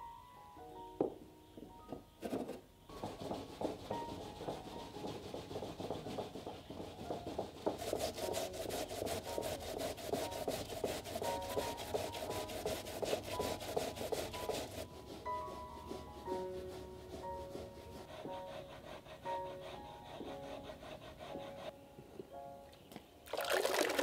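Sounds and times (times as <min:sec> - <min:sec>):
sweet potato rasping on grater: 0:03.0 - 0:19.6.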